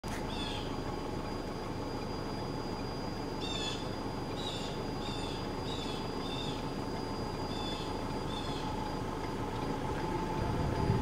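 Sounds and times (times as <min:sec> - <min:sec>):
bird chirping: 0:00.3 - 0:00.7, 0:03.4 - 0:06.7, 0:07.4 - 0:08.9.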